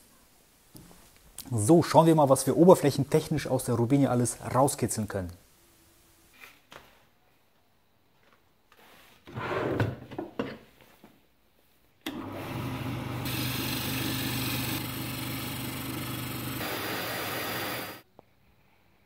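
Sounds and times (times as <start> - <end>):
lathe motor hum: 12.1 - 18.0
gouge cutting wood hissing: 13.2 - 18.0.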